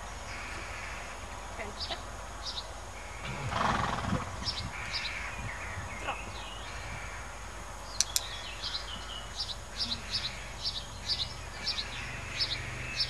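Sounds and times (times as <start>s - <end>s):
songbird chirping: 0.0s - 13.0s
sharp clicks: 8.0s - 8.3s.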